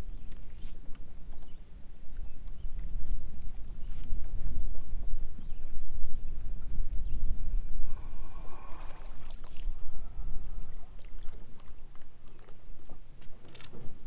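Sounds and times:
wind buffeting microphone: 0.0 - 14.0
water sloshing: 8.1 - 13.1.

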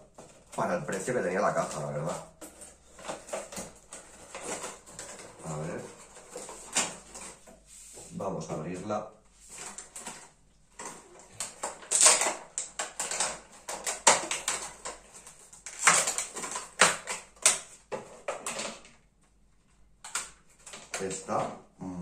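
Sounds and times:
plastic packaging crinkling: 0.0 - 7.5, 9.4 - 18.9.

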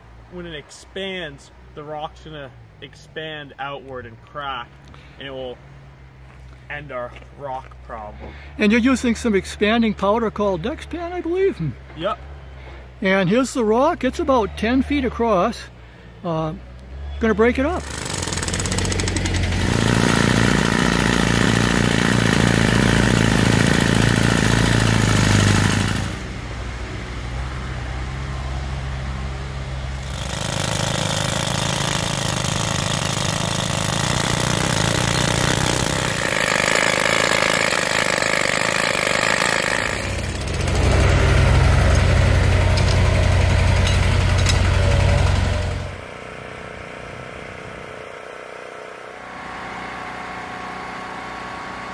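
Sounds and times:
wheel loader engine running: 16.6 - 28.4, 29.0 - 51.9
pneumatic rock drill hammering: 17.7 - 26.3, 30.0 - 46.0
air compressor running: 17.7 - 26.4, 29.9 - 51.9.

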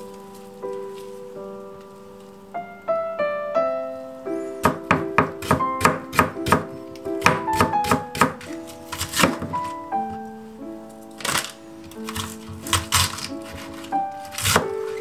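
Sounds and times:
soft piano music: 0.0 - 15.0
knife chopping on wooden board: 4.6 - 9.6, 12.1 - 14.8.

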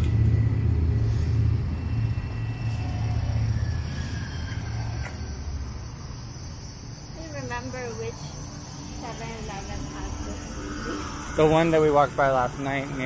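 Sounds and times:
passing motor vehicle rumble: 0.0 - 13.0.

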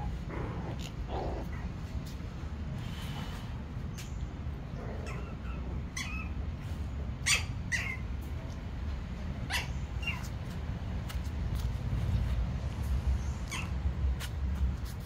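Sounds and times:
puppies yipping and squealing: 4.0 - 8.3, 9.4 - 10.6, 13.4 - 13.8.

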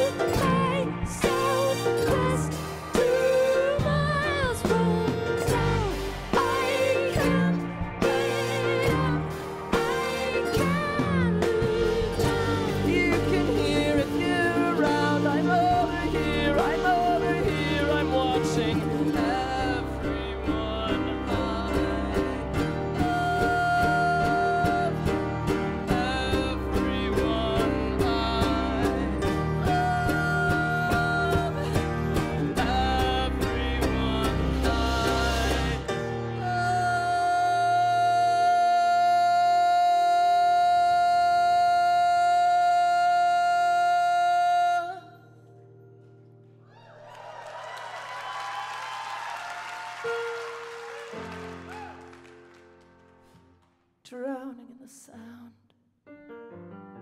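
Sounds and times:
drums: 0.0 - 42.4
piano: 0.0 - 54.4, 56.0 - 57.0
audience applause: 46.7 - 53.4.

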